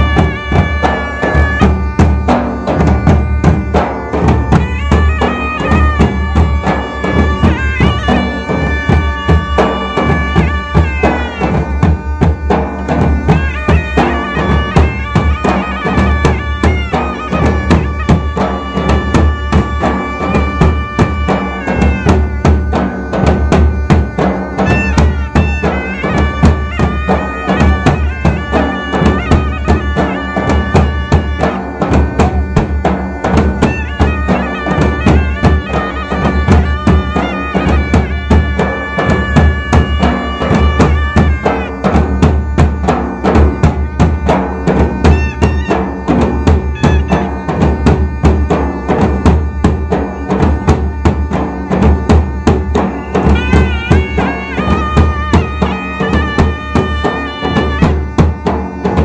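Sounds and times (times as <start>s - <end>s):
fast dhol drumming: 0.0s - 59.0s
shehnai reed melody: 0.0s - 59.0s.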